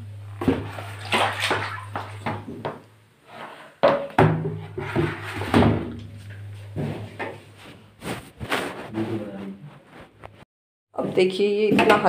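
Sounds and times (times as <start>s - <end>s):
low steady hum: 0.0s - 3.2s, 4.4s - 9.7s
blanket rustling and knocks: 6.8s - 8.9s.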